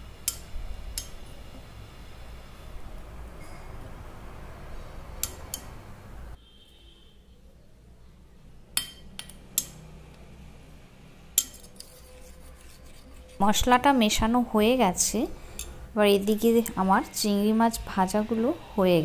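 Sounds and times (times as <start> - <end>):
low background hum: 7.2 - 19.0
metal spoon clinking bowl: 8.8 - 9.8, 11.4 - 12.2, 15.5 - 15.8.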